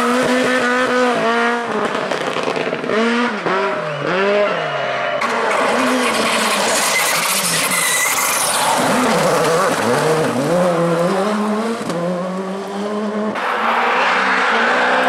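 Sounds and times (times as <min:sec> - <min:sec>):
rally car engine revving: 0:00.0 - 0:04.6, 0:05.2 - 0:15.0
tyres on gravel: 0:05.2 - 0:10.6.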